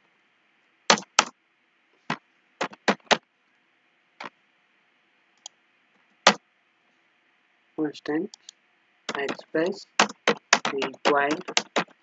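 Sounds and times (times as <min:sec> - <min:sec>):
keyboard keystrokes: 0:09.1 - 0:12.0.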